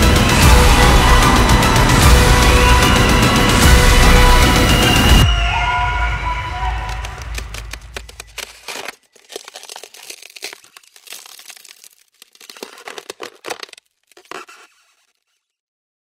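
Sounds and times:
low bass music: 0.0s - 5.3s
crackling and crunching snaps: 6.8s - 15.4s.

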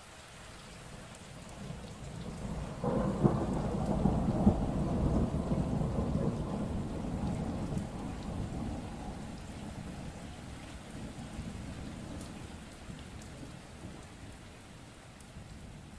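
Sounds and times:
steady rain: 0.0s - 15.9s
thunder rumbling: 1.6s - 14.1s.

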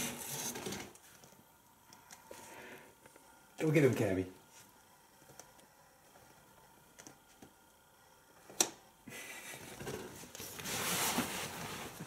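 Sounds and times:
tent fabric rustling: 10.4s - 12.0s.

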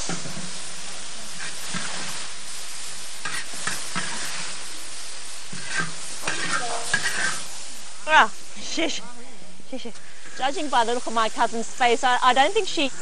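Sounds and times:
stir-fry sizzling in wok: 0.0s - 13.0s
metal spatula scraping wok: 1.4s - 2.2s, 3.2s - 4.6s, 5.5s - 7.7s.

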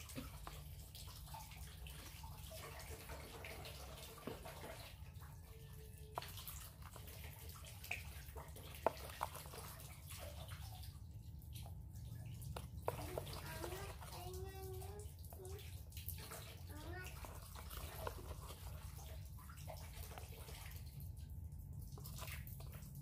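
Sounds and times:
low background hum: 0.0s - 23.0s
wooden spoon knocking on containers: 12.5s - 14.1s.

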